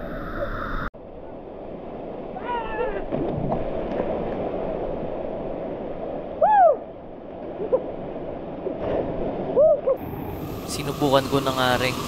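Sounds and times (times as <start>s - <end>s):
person whooping: 6.4s - 6.9s, 9.6s - 10.0s
waterfall rushing: 10.0s - 12.0s.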